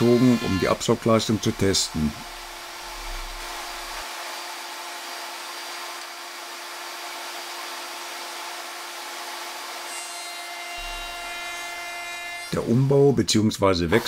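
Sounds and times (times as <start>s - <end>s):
router motor high whine: 0.0s - 8.1s, 10.8s - 12.6s.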